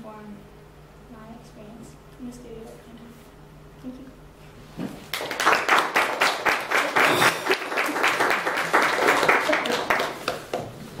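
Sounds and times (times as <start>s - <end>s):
audience applauding: 5.1s - 10.7s.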